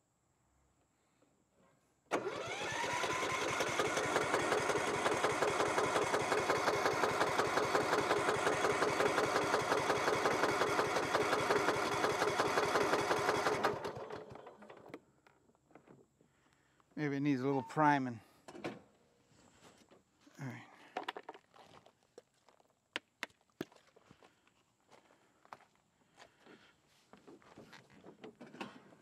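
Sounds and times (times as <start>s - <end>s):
electric starter cranking engine: 2.1s - 14.8s.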